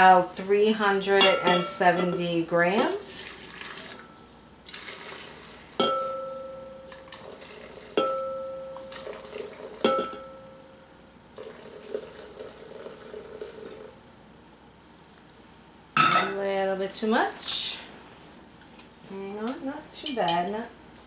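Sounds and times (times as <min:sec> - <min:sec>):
metal rim clinking on glass: 0:01.0 - 0:02.4, 0:05.8 - 0:07.1, 0:08.0 - 0:09.2, 0:09.8 - 0:10.6, 0:16.0 - 0:16.4
juice pouring into a glass: 0:03.2 - 0:04.0, 0:04.6 - 0:05.8, 0:06.9 - 0:08.0, 0:08.8 - 0:09.8, 0:11.3 - 0:14.0.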